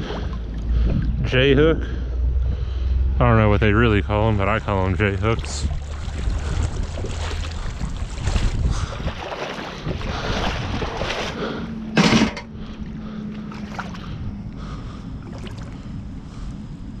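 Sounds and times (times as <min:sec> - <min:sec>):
water sloshing: 0:00.0 - 0:01.3, 0:03.8 - 0:16.6
scrap metal clanking: 0:11.9 - 0:12.5.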